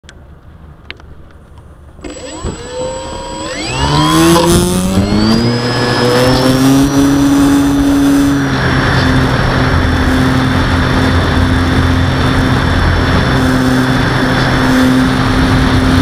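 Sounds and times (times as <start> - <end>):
electric motor and propeller whine: 2.0 - 16.0.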